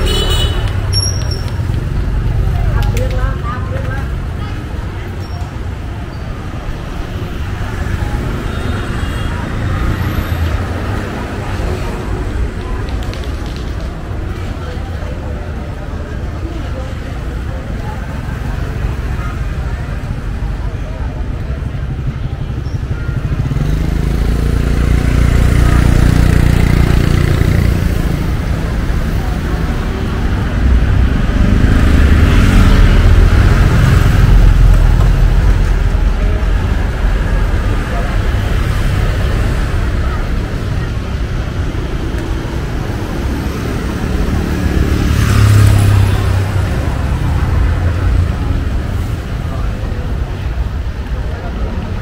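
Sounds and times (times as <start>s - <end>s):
street noise: 0.0s - 52.0s
vehicle engine passing by: 42.5s - 49.7s.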